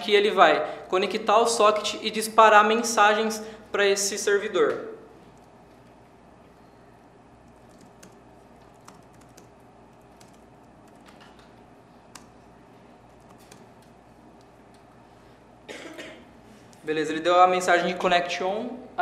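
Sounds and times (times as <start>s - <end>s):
laptop keyboard typing: 7.4s - 12.4s, 13.1s - 14.5s.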